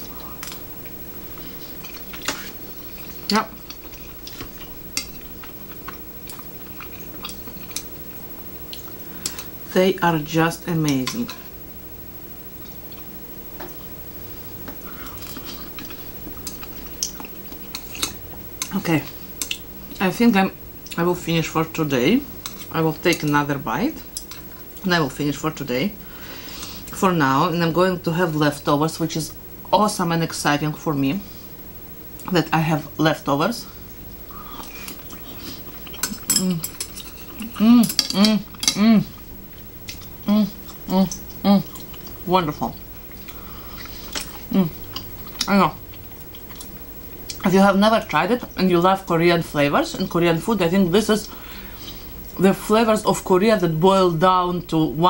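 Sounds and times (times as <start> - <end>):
mouth chewing: 0.0 - 8.0, 14.6 - 19.7, 34.3 - 42.3, 43.0 - 47.5
steady low hum: 0.0 - 55.0
woman humming: 36.3 - 36.8, 37.4 - 39.2, 40.2 - 41.8, 44.4 - 45.8.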